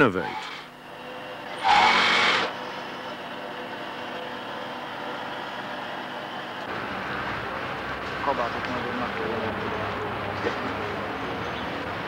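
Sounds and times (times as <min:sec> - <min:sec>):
sewing machines whirring: 0:00.0 - 0:06.5
loud hiss: 0:01.6 - 0:02.5.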